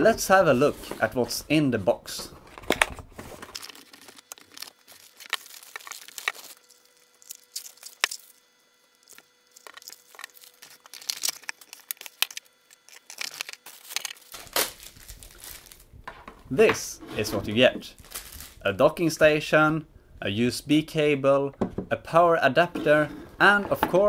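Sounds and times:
plastic wrapping crinkling: 0:02.5 - 0:16.3, 0:17.9 - 0:18.7.

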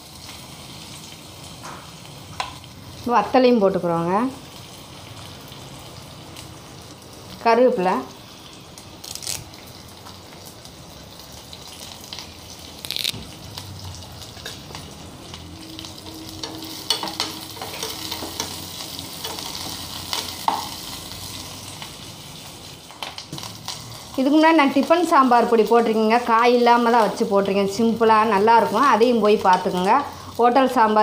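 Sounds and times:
spices sizzling in hot oil: 0:00.0 - 0:31.0
metal spoon scraping pan: 0:16.0 - 0:20.7.

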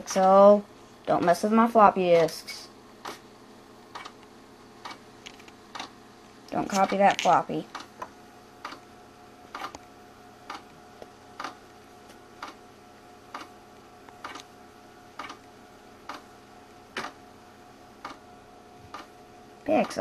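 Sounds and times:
computer humming: 0:00.0 - 0:20.0
hard drive clicking: 0:13.3 - 0:17.2.

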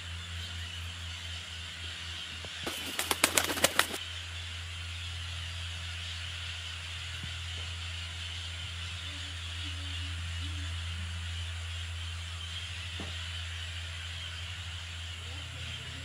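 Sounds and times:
bird wingbeats: 0:02.4 - 0:04.0.

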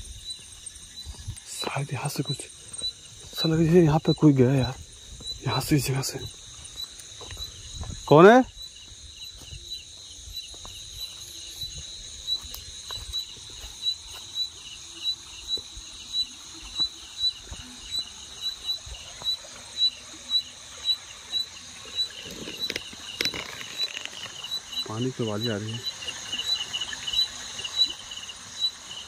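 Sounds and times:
night insects chirping: 0:00.0 - 0:29.0
footsteps through grass: 0:08.9 - 0:14.4.

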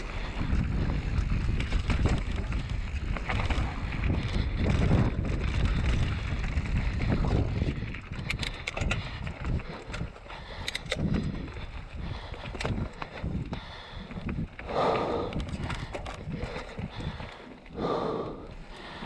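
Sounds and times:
tyres rumbling on dirt: 0:00.0 - 0:10.2
bike rattling over bumps: 0:00.0 - 0:19.0
wind buffeting microphone: 0:00.0 - 0:19.0
sharp clicks: 0:10.6 - 0:11.3.

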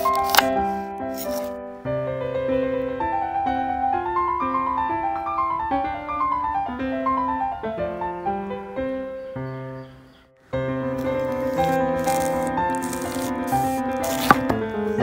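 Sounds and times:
gentle piano music: 0:00.0 - 0:15.0.

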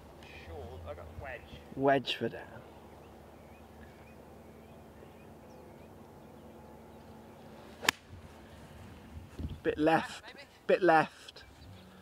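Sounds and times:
golf club striking ball: 0:07.8 - 0:08.2.

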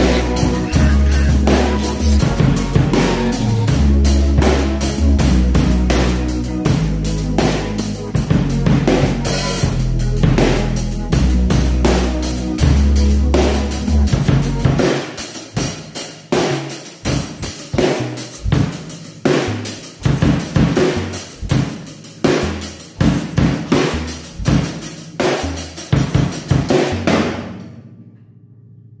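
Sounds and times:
pop song: 0:00.0 - 0:03.9
drum kit playing a beat: 0:00.0 - 0:27.6.

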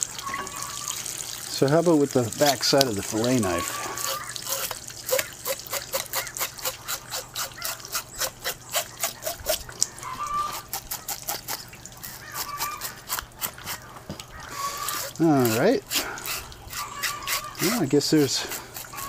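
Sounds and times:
knife scraping fish scales: 0:03.6 - 0:13.9, 0:14.5 - 0:19.0.

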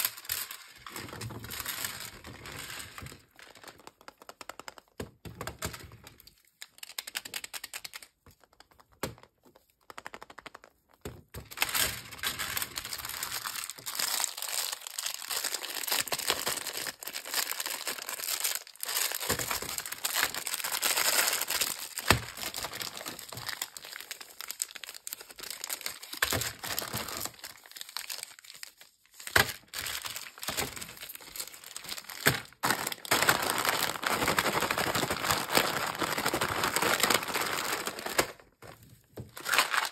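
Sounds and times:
candy wrappers crinkling: 0:00.0 - 0:04.8, 0:06.6 - 0:08.5, 0:11.4 - 0:39.9
snack bag crinkling: 0:12.2 - 0:39.9.

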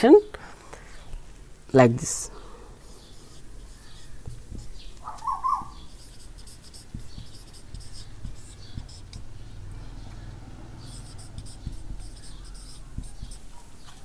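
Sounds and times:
marker scratching on whiteboard: 0:02.8 - 0:09.4, 0:10.8 - 0:14.0
marker squeak: 0:03.0 - 0:09.3, 0:10.8 - 0:14.0.

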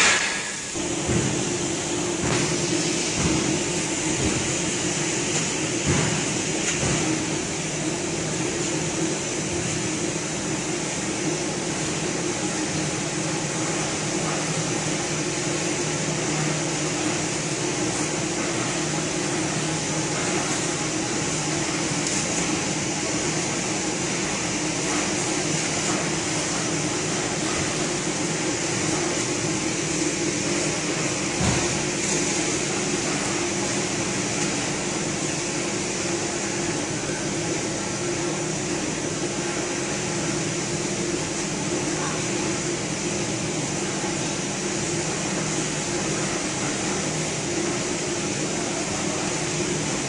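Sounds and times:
machine hiss: 0:00.0 - 0:07.9
machine humming: 0:00.0 - 0:50.0.

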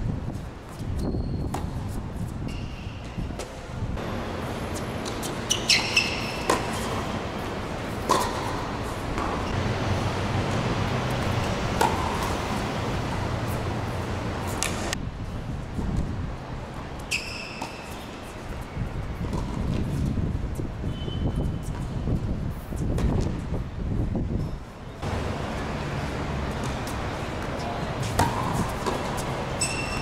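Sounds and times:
steady background noise: 0:00.0 - 0:30.0
tennis balls bouncing on hard court: 0:00.7 - 0:15.0, 0:17.0 - 0:18.6, 0:19.2 - 0:20.1, 0:22.8 - 0:23.4, 0:25.0 - 0:30.0
tennis balls struck with racquets: 0:01.5 - 0:15.0, 0:17.1 - 0:18.2, 0:19.2 - 0:20.0, 0:25.0 - 0:30.0.

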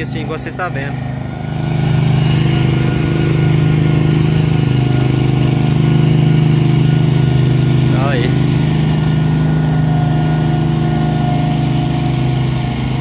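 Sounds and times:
paving machine engine drone: 0:00.0 - 0:13.0.

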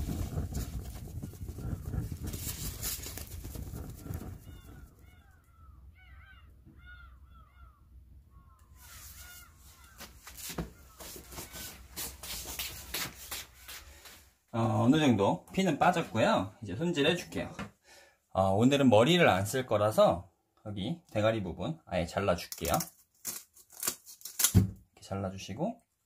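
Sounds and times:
rustling: 0:00.0 - 0:05.4, 0:08.7 - 0:14.3
birds calling: 0:04.0 - 0:11.8.

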